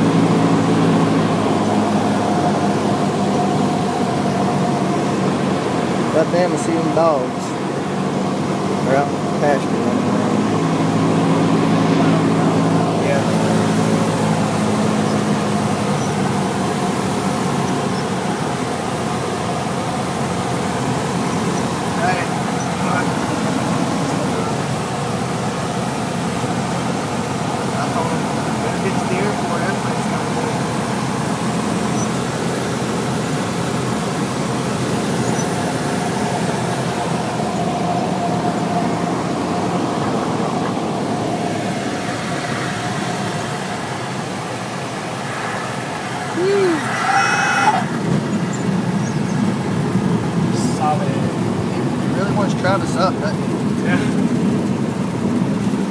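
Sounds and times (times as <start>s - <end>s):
aircraft engine and propeller droning: 0.0s - 55.9s
rush of air noise: 10.4s - 15.0s.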